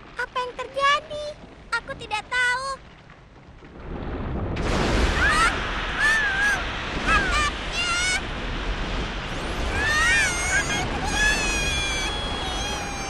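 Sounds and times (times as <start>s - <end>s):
cartoon rumble: 9.4s - 13.0s.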